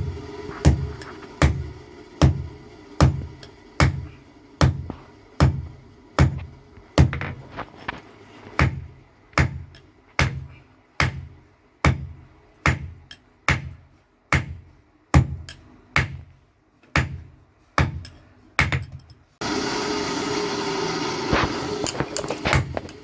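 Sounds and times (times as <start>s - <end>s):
hammer striking iron on anvil: 0.6s - 7.3s, 8.5s - 19.2s.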